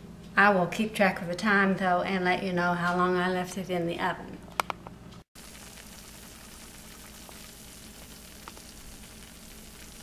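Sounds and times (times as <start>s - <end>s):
food sizzling in baking dish: 5.4s - 10.0s.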